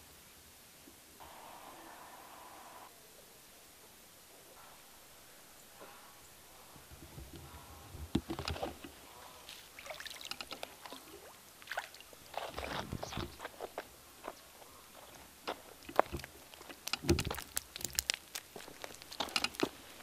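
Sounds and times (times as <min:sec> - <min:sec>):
fish splashing in water: 0:09.5 - 0:13.4
fish flopping on concrete: 0:15.8 - 0:19.8.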